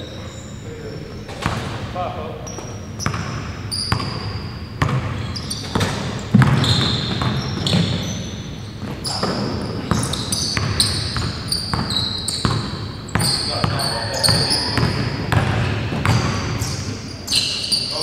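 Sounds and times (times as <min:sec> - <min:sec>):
sneakers squeaking: 0:00.0 - 0:18.0
basketball bouncing on wood floor: 0:02.5 - 0:08.4, 0:09.1 - 0:16.9.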